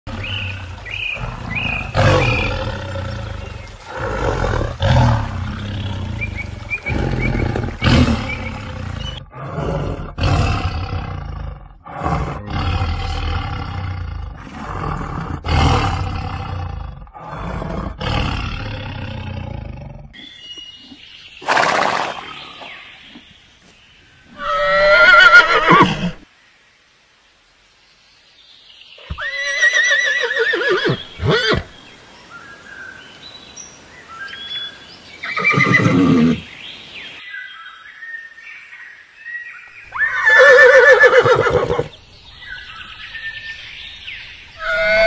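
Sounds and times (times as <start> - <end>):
tigers roaring and growling: 0.1 - 20.2
horse neighing: 24.4 - 26.2, 29.1 - 31.7, 35.3 - 36.4, 39.9 - 41.9, 44.6 - 45.0.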